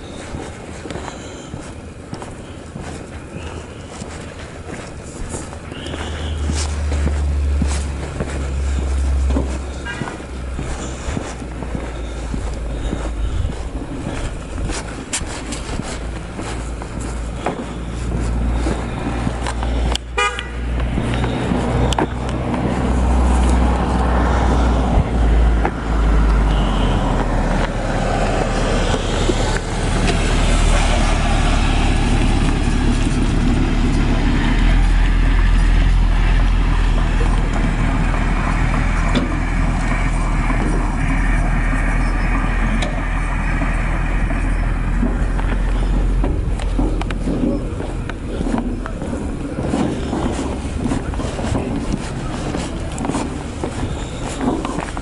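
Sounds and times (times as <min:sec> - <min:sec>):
vehicle engine running: 0:00.0 - 0:55.0.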